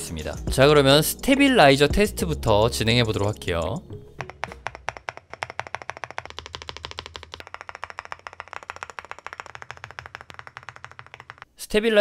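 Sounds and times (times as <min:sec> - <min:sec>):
mechanical keyboard keys clacking: 0:03.2 - 0:11.5.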